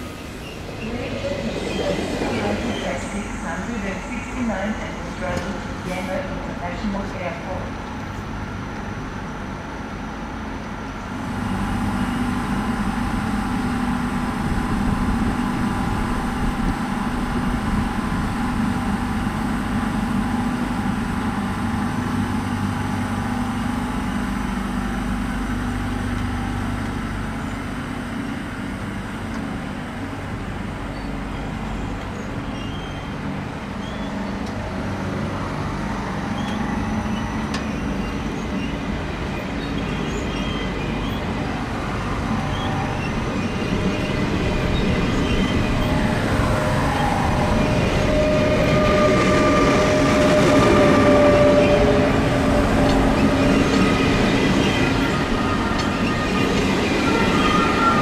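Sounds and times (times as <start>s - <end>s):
electric train humming and whining: 0.0s - 58.0s.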